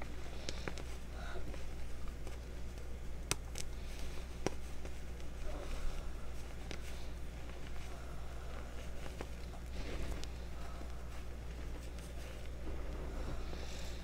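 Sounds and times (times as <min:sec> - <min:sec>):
steady low hum: 0:00.0 - 0:14.0
chalk pieces snapping: 0:02.0 - 0:05.3.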